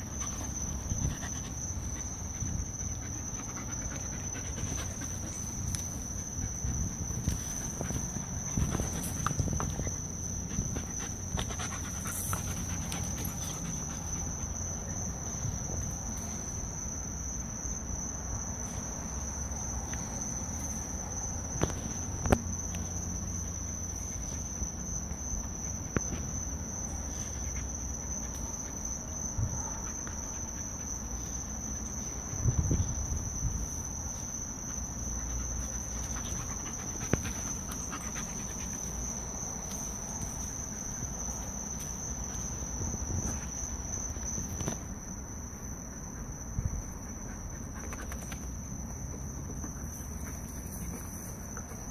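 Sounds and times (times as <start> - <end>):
dogs panting: 0.0 - 15.0, 34.6 - 41.6
crickets chirring: 0.0 - 51.9
dogs scuffling thuds and knocks: 6.6 - 13.8.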